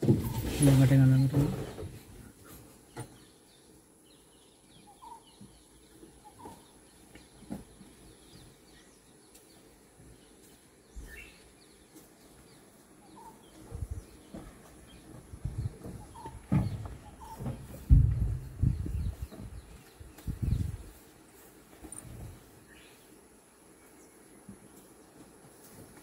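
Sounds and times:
birds chirping: 0.0s - 26.0s
low thuds: 13.7s - 20.9s.

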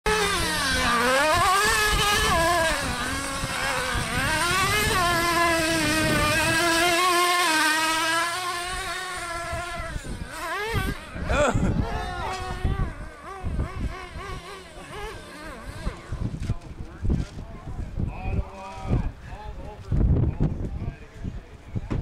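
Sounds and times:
small two-stroke engine revving: 0.1s - 16.6s.

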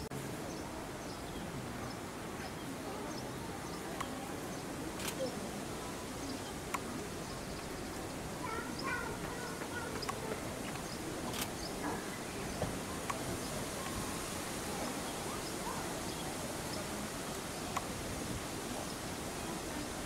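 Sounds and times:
outdoor background hiss: 0.0s - 20.0s
faint clicks: 3.9s - 5.4s, 6.2s - 8.2s, 8.8s - 14.0s, 17.3s - 18.0s.

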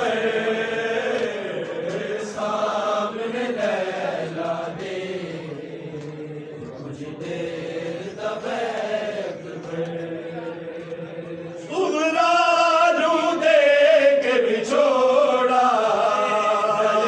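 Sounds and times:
man chanting into a microphone: 9.2s - 17.0s.

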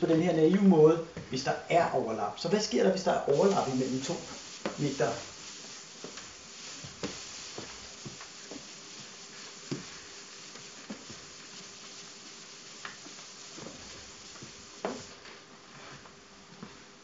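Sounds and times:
sponge scrubbing chalkboard: 3.2s - 15.2s.

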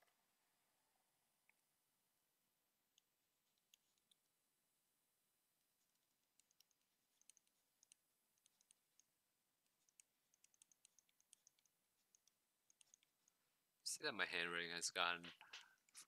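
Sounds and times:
stylus tapping tablet screen: 2.9s - 4.2s, 5.8s - 13.4s.

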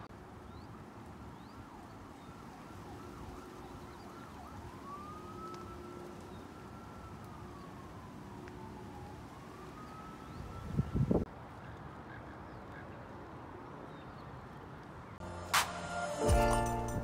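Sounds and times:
faint emergency siren: 0.0s - 12.0s.

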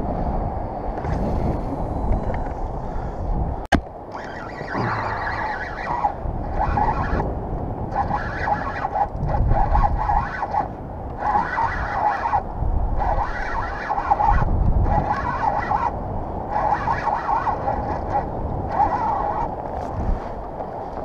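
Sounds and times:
wind on microphone: 0.0s - 21.0s
fishing reel whirring: 4.1s - 7.3s, 7.9s - 20.3s.

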